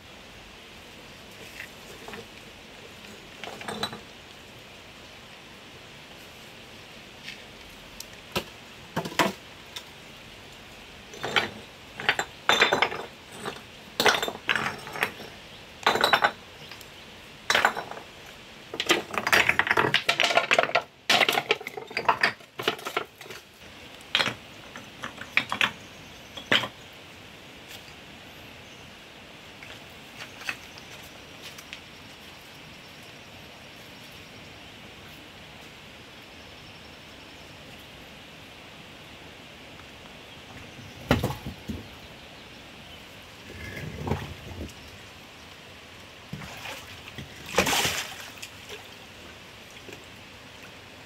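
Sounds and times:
steady hiss: 0:00.0 - 0:46.3
bamboo poles and stones knocking on rock: 0:08.3 - 0:09.4, 0:18.7 - 0:23.4, 0:24.1 - 0:25.8, 0:26.4 - 0:26.8, 0:40.5 - 0:41.9.

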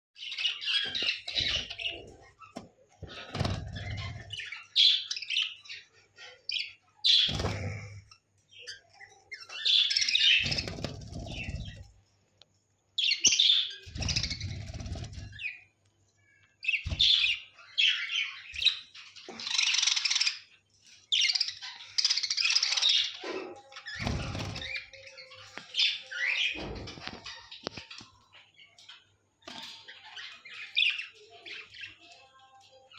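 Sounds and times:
wings flapping: 0:07.3 - 0:08.0, 0:10.4 - 0:11.9, 0:13.9 - 0:15.5, 0:24.0 - 0:24.8.

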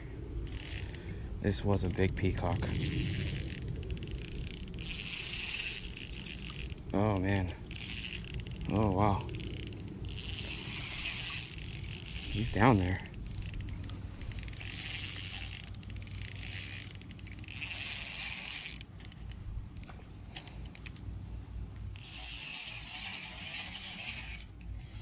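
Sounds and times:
fishing reel whirring: 0:00.4 - 0:19.9, 0:20.6 - 0:20.9, 0:21.9 - 0:24.9
reel ratcheting clicks: 0:00.4 - 0:21.0, 0:21.7 - 0:24.8.

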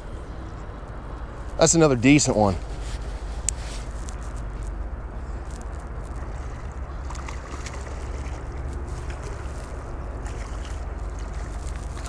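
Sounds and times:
wind rumble on microphone: 0:00.0 - 0:12.0
faint ticks: 0:03.4 - 0:04.8, 0:05.4 - 0:12.0.

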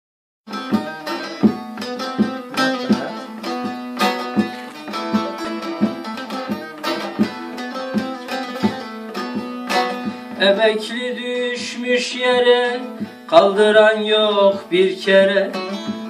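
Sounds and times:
long-necked lute melody: 0:00.5 - 0:11.0.

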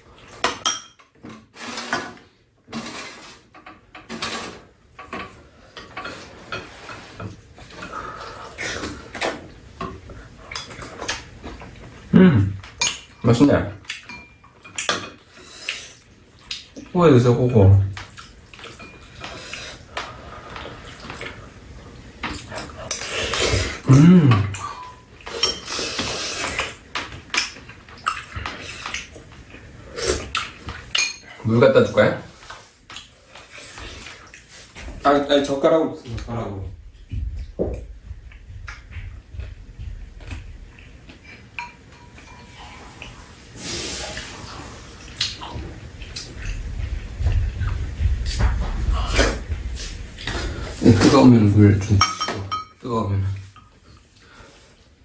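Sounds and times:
utensils clinking against bowls: 0:00.4 - 0:01.2, 0:12.6 - 0:15.3, 0:17.2 - 0:19.8, 0:22.2 - 0:29.0, 0:30.2 - 0:31.8, 0:51.8 - 0:52.9.

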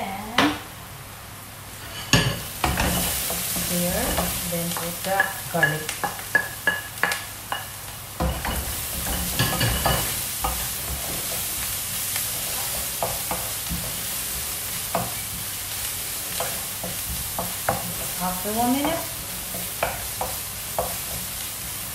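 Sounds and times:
onion and garlic sizzling in pan: 0:00.0 - 0:21.9
wooden spoon scraping a pan: 0:01.8 - 0:21.9
spoon knocking against pan: 0:04.1 - 0:11.1, 0:18.8 - 0:21.0
sharp taps of garlic into pan: 0:18.8 - 0:21.1.

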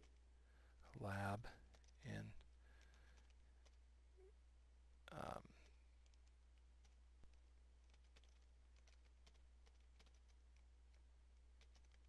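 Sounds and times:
low steady hum: 0:00.0 - 0:12.0
faint keyboard typing: 0:00.8 - 0:03.9, 0:05.1 - 0:12.0.

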